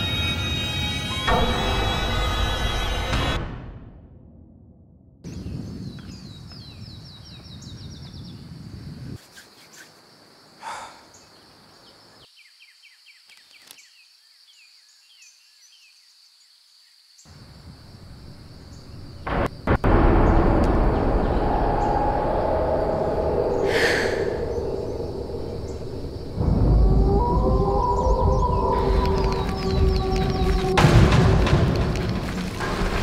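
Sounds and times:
insects droning and chirping: 5.3s - 33.0s
low rumble: 19.2s - 33.0s
rushing noise: 19.2s - 33.0s.

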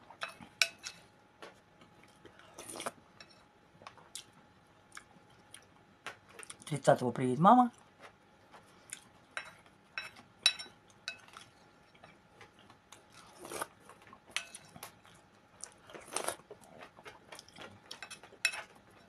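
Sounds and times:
person chewing: 1.4s - 3.0s, 3.8s - 6.7s, 7.7s - 10.3s, 10.9s - 19.0s.

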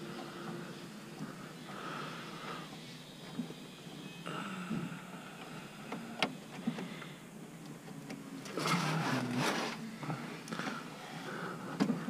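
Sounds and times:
rustling and scraping of hands: 8.5s - 12.0s.

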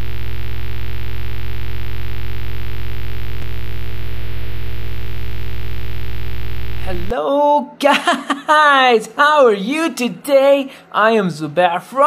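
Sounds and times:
electronic buzzing drone: 0.0s - 7.1s.

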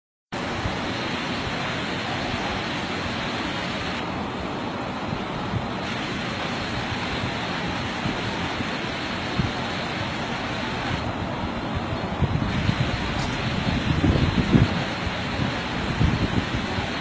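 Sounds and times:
heavy rain hissing: 0.4s - 17.0s.

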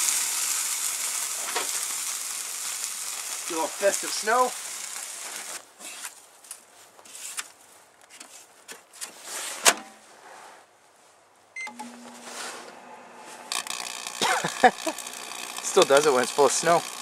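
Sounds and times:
electrical arcing crackle: 0.0s - 5.6s, 13.4s - 17.0s
plastic bag rustling: 0.0s - 6.2s
keypad beep: 11.6s - 11.9s
microwave humming: 11.6s - 17.0s.

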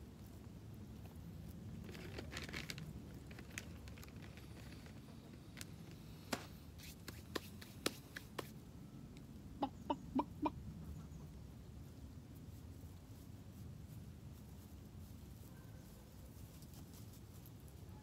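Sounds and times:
chicken clucking: 9.5s - 11.4s.

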